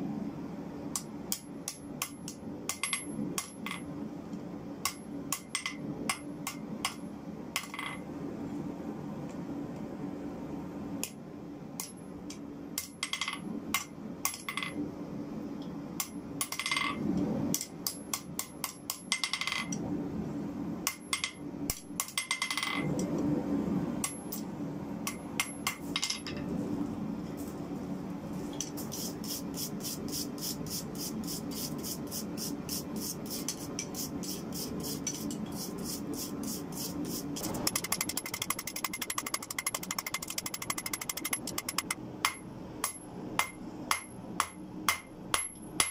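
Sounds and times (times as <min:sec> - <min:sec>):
steady hum: 0:22.8 - 0:45.9
fast even ticking: 0:37.5 - 0:42.0
hammer striking steel on anvil: 0:41.2 - 0:45.9.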